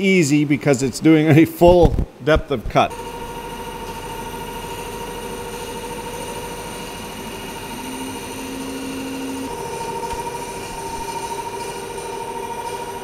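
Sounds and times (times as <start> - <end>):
lower machining tone: 2.9 - 13.0
mill saw cutting aluminum whine: 2.9 - 13.0.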